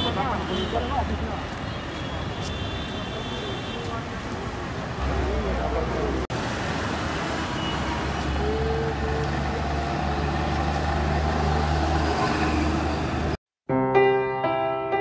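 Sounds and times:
city traffic noise: 0.0 - 13.4
bus engine passing: 4.2 - 13.4.

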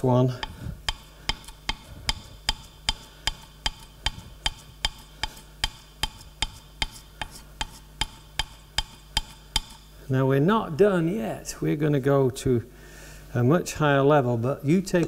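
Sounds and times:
chisel sharpening on abrasive sheet: 1.3 - 9.9.

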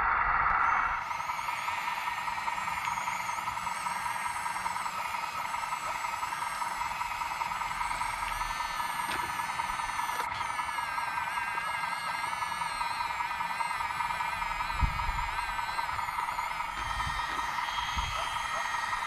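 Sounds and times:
small electric motor whine: 0.0 - 19.0.

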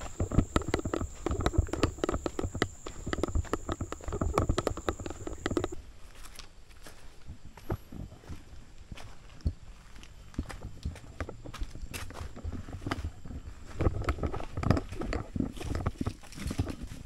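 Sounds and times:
high-pitched whine: 0.0 - 5.8
footsteps walking uphill: 0.0 - 17.0.

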